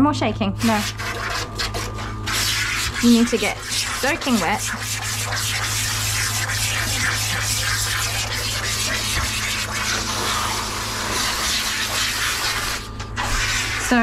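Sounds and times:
steady low hum: 0.0s - 14.0s
shower sprayer spraying water: 0.6s - 14.0s.

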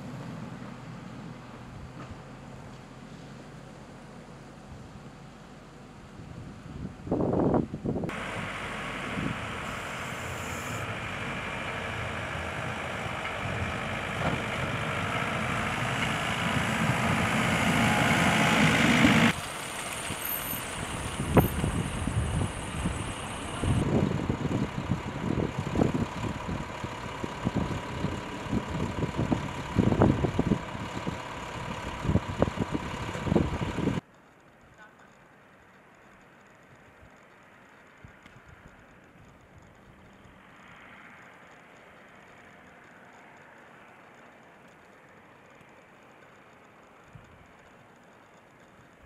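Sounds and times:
vehicle running noise: 0.0s - 49.0s
trucks idling: 8.1s - 34.0s.

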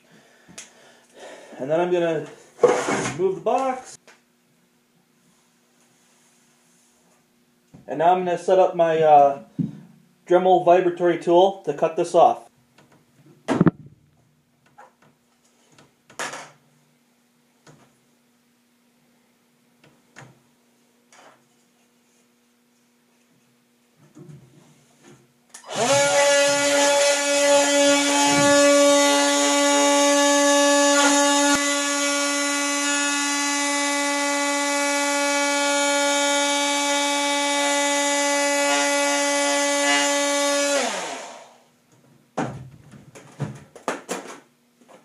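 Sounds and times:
power tool cutting plastic: 25.6s - 41.6s.

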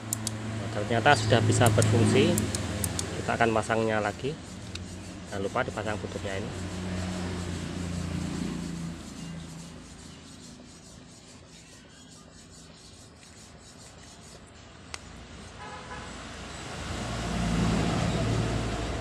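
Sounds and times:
sharp plastic click: 1.6s - 3.1s.

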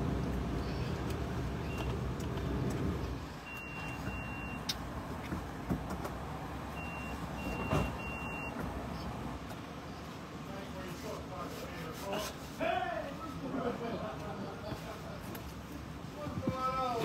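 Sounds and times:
vehicle idling rumble: 0.0s - 10.7s
short high-pitched beeps: 3.4s - 4.7s.

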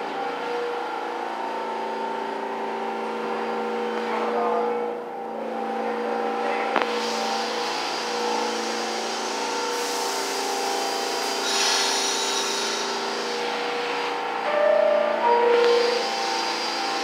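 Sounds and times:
subway train slowing to a stop: 0.0s - 17.0s
steady hiss: 6.8s - 14.2s.

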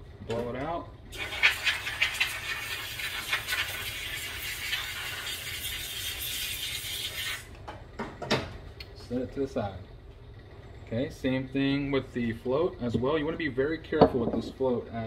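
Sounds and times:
compressed air hissing: 1.1s - 7.5s.

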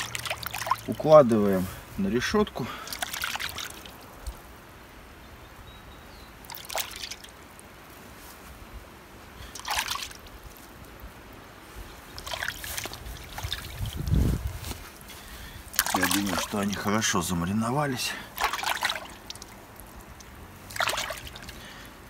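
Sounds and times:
brine splashing in a metal pot: 0.0s - 1.6s, 2.3s - 4.2s, 6.4s - 7.4s, 9.4s - 10.5s, 12.1s - 14.1s, 15.6s - 21.8s
faint steady background: 0.0s - 22.0s.

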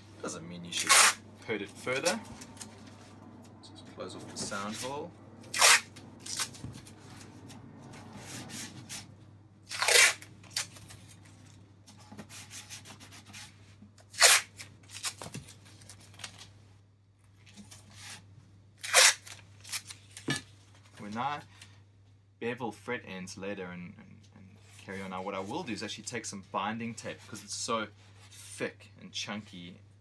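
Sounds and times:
hands rubbing tape strips: 0.8s - 1.2s, 5.5s - 9.1s, 9.7s - 11.2s, 12.2s - 15.2s, 18.8s - 19.9s
masking tape ripping off roll: 0.8s - 1.2s, 5.5s - 6.6s, 9.7s - 10.9s, 14.1s - 15.3s, 18.8s - 20.1s.

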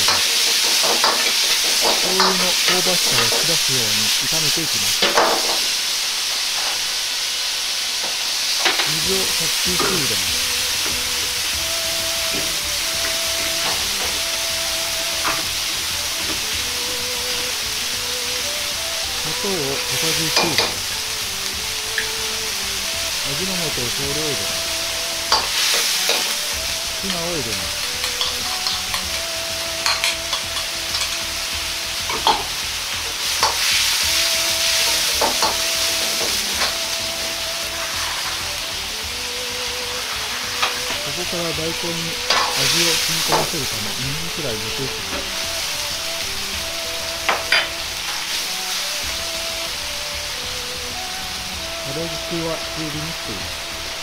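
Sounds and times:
water sizzling in hot wok: 0.0s - 54.0s
metal ladle scraping a wok: 25.1s - 26.4s, 27.8s - 29.2s, 42.2s - 42.7s.

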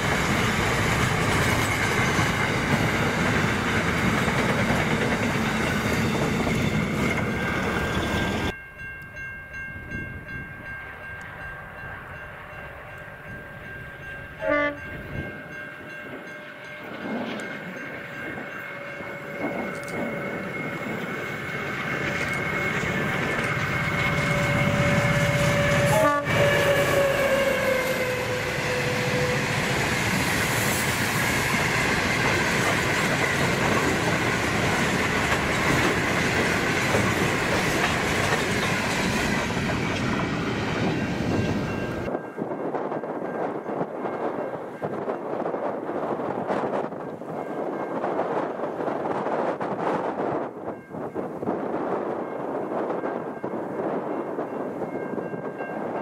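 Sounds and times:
train wheel clatter: 0.0s - 8.6s, 16.0s - 42.1s
locomotive horn: 14.4s - 15.0s, 23.6s - 29.7s.

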